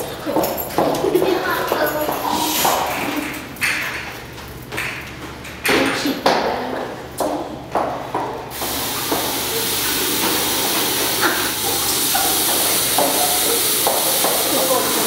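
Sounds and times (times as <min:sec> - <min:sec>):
tap running into washbasin: 0:08.2 - 0:15.0.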